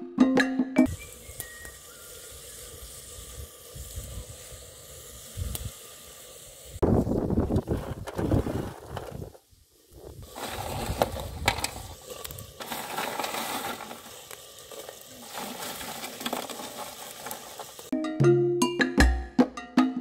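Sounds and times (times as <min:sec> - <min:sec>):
stew sizzling and bubbling: 0:00.8 - 0:18.0
percussive background music: 0:18.0 - 0:20.0.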